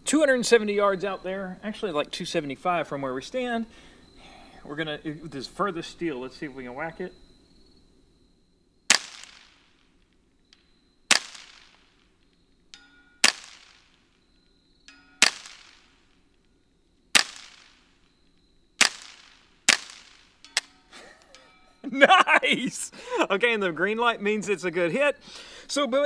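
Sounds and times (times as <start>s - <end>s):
suppressed rifle shots: 8.9s - 9.9s, 10.5s - 12.1s, 13.2s - 14.1s, 15.2s - 16.3s, 17.1s - 20.7s.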